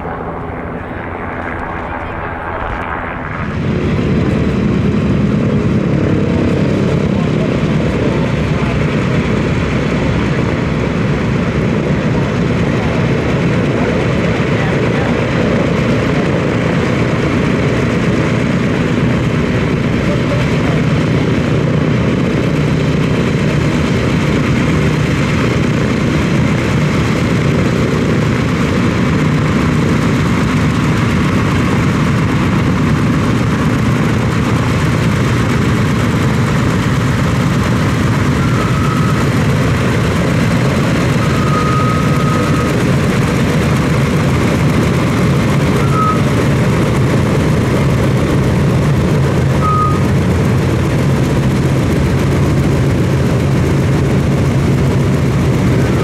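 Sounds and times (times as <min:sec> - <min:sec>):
radial aircraft engines droning: 0:00.0 - 0:56.0
high squeals: 0:38.0 - 0:42.9.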